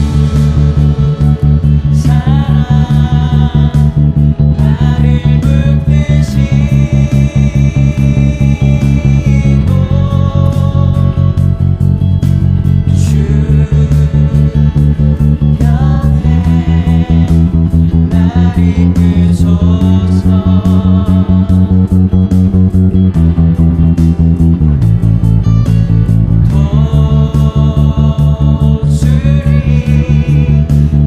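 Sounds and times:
steady drum beat: 0.0 - 5.6
loud bass guitar notes: 0.0 - 31.0
praise song music: 0.0 - 31.0.

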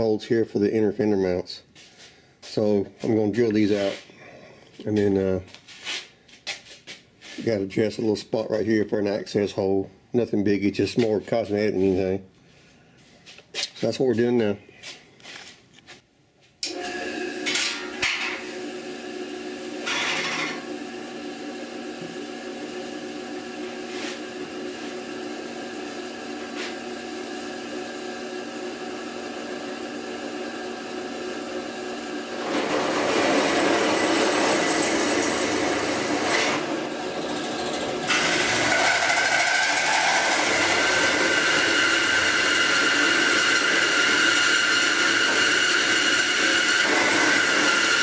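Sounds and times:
drill press running: 16.6 - 48.0
drill bit cutting steel: 31.1 - 48.0.

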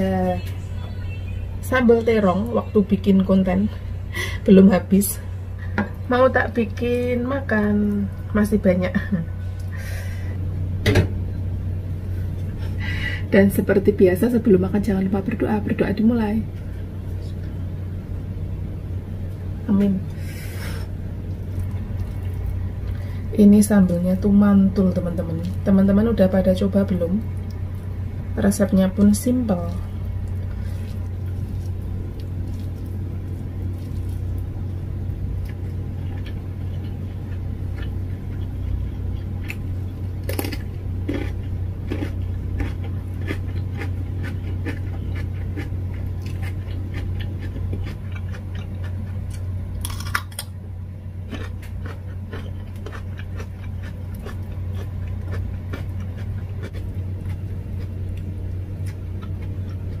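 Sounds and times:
steady low hum: 0.0 - 60.0
person crunching cucumber: 35.4 - 50.6, 51.2 - 60.0.

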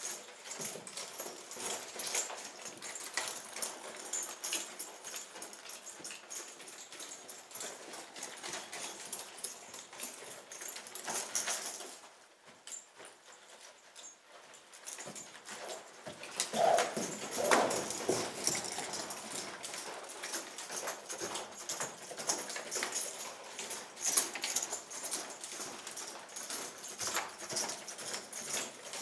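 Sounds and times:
hooves thudding on sand: 15.0 - 19.5.

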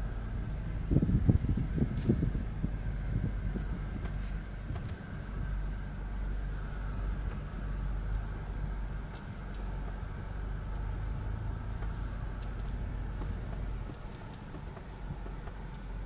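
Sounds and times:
car engine idling: 0.0 - 16.0
faint clicks: 9.1 - 11.0, 11.7 - 16.0.

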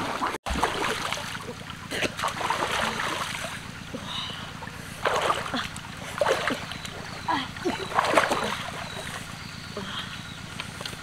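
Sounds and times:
water splashing: 0.0 - 3.7, 4.6 - 9.3.

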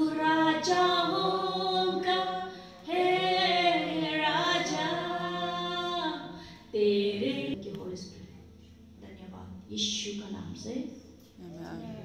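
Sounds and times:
woman singing unaccompanied: 0.0 - 7.6.

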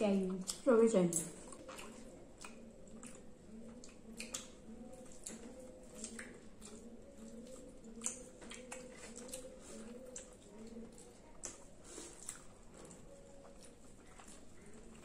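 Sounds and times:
chewing and mouth clicks: 0.2 - 15.0
fingers mixing rice on plates: 1.2 - 15.0.

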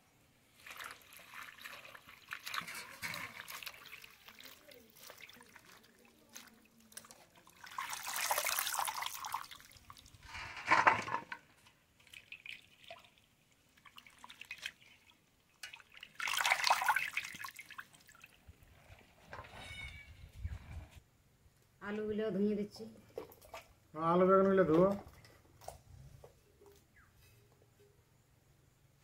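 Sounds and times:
water splashing and pouring: 0.5 - 11.4, 12.0 - 19.1
water dripping and sloshing: 0.5 - 19.3, 23.1 - 23.8.

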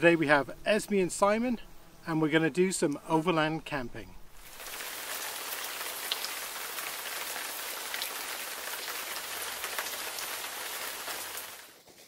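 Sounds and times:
rain falling: 4.4 - 12.0.

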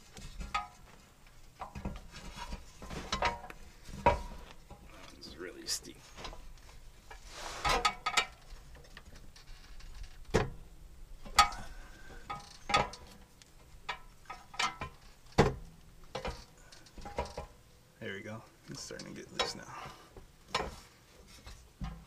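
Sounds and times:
sharp metallic clicks and knocks: 11.2 - 17.6.

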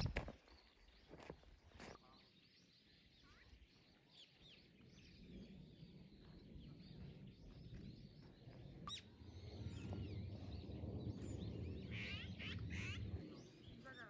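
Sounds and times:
small birds chirping: 0.0 - 14.0
low rumble: 5.1 - 13.8.

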